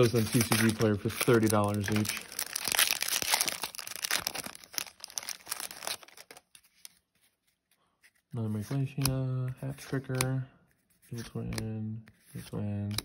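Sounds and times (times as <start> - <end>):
foil wrapper crinkling and tearing: 0.0 - 7.1.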